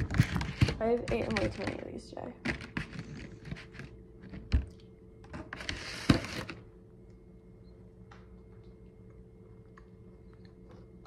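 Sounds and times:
low steady hum: 0.0s - 11.0s
cookie being chewed: 2.5s - 5.0s, 8.0s - 11.0s.

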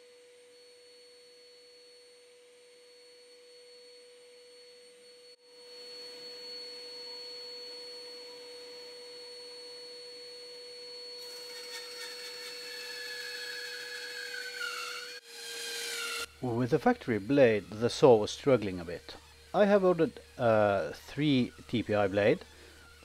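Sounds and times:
bandsaw motor hum and whine: 0.0s - 23.0s
saw cutting wood: 11.2s - 23.0s.

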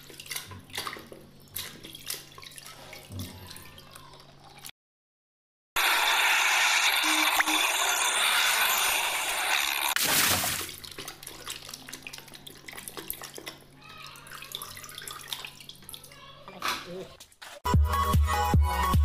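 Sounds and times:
water splashing and sloshing: 0.0s - 4.8s, 9.9s - 16.7s.

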